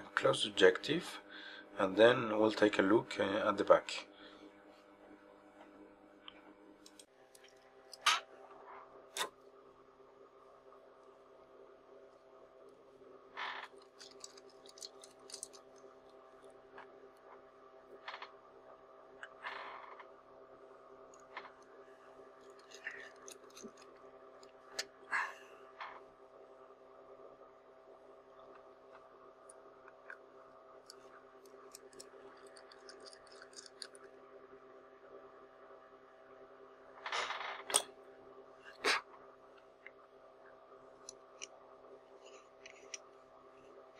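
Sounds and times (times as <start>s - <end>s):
faint steady hum: 0.0s - 43.9s
small clicks: 13.4s - 16.2s, 30.8s - 34.1s.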